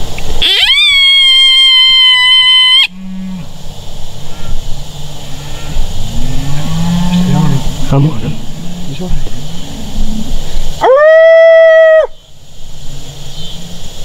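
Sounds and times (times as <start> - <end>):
coyote howl from predator call: 0.4 - 3.0
low calls rising and falling: 0.4 - 3.0.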